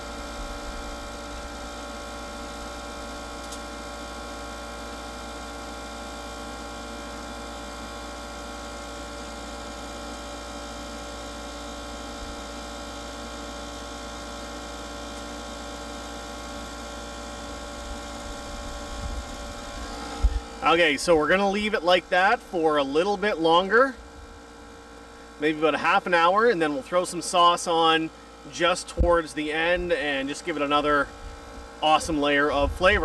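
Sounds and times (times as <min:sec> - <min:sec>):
fan humming: 0:00.0 - 0:33.0.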